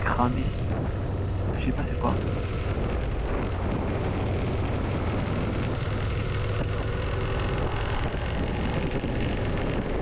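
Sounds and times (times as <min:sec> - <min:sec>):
motorcycle engine running: 0:00.0 - 0:10.0
wind rush: 0:00.0 - 0:10.0.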